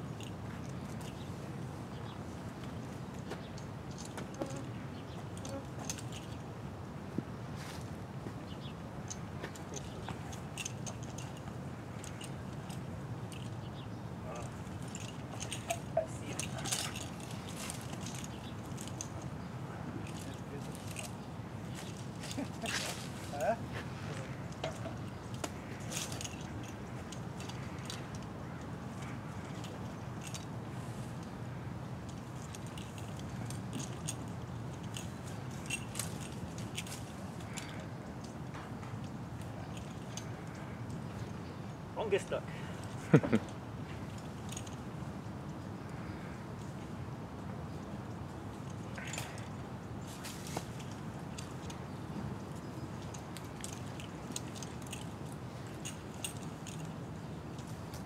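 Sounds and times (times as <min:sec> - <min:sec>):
low outdoor background hum: 0:00.0 - 0:58.0
metal hardware clicking and jingling: 0:09.1 - 0:23.6, 0:24.2 - 0:30.6, 0:31.2 - 0:45.1, 0:48.5 - 0:58.0.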